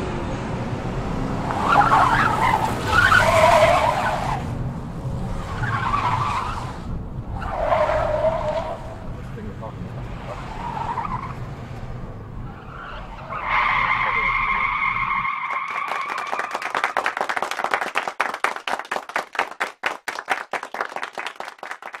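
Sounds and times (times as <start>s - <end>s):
hands clapping: 15.5s - 22.0s.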